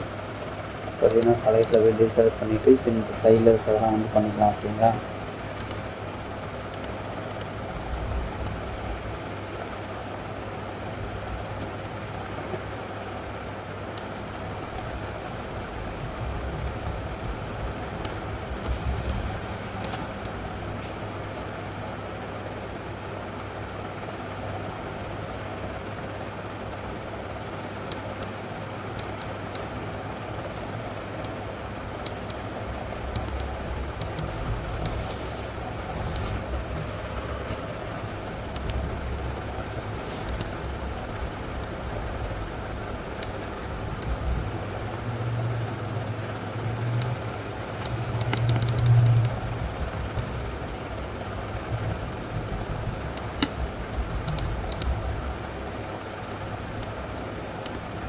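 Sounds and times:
background hum: 0.0 - 58.0
computer mouse clicking: 1.0 - 1.9, 5.6 - 5.8, 6.7 - 7.5, 18.0 - 18.2, 19.8 - 20.9, 27.8 - 29.7, 32.0 - 32.4, 33.1 - 35.3, 35.9 - 36.5, 38.4 - 38.8, 40.2 - 40.6, 43.2 - 43.4, 46.9 - 47.2, 47.8 - 49.4, 54.2 - 55.0.

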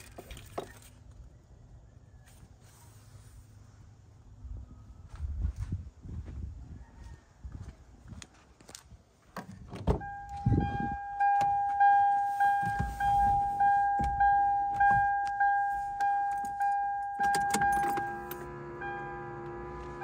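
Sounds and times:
car warning chime dinging: 10.0 - 20.0
key clicking in ignition: 16.0 - 18.4.

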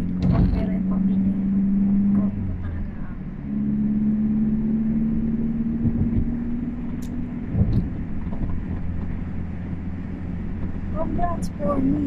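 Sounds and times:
low thumps: 0.0 - 11.0
car engine and road rumble: 0.0 - 12.0
steady hum: 0.0 - 12.0.

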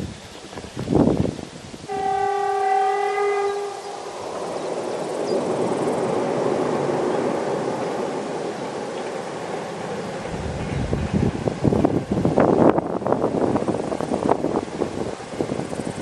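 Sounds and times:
freight train noise: 0.0 - 16.0
locomotive horn blast: 1.9 - 4.2.

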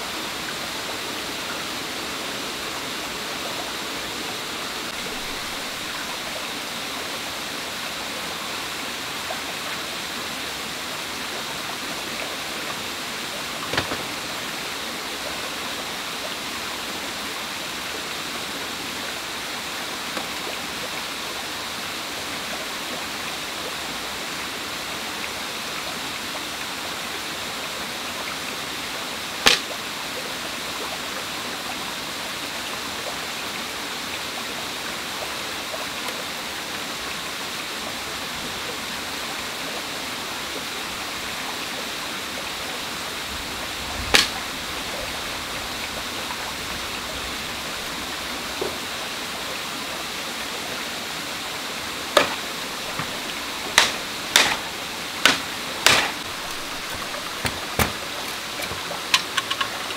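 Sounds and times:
stream running over rocks: 0.0 - 59.9
crossbow snaps: 20.2 - 20.4, 29.4 - 29.8, 44.1 - 44.4, 52.2 - 59.8.

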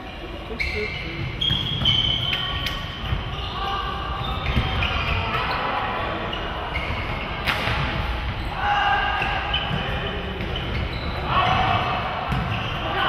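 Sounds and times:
shoes squeaking on floor: 0.5 - 11.6, 12.3 - 13.0
sharp smack: 7.4 - 7.9.

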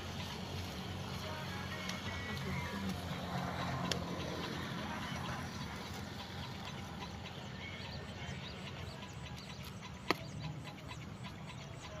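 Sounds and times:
faint bird chirps: 1.8 - 12.0.

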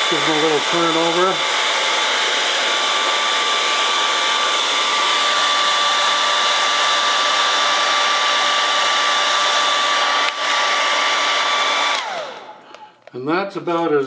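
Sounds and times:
hair dryer blowing: 0.0 - 12.9.

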